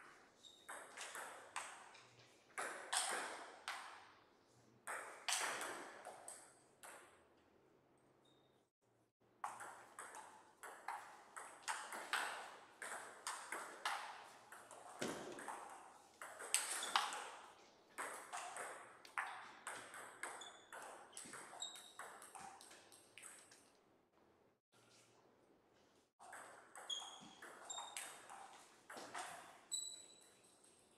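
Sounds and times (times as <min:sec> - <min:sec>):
table tennis ball hitting bats: 0:00.7 - 0:02.0, 0:02.6 - 0:04.1, 0:04.9 - 0:07.2, 0:09.4 - 0:23.7, 0:26.2 - 0:30.8.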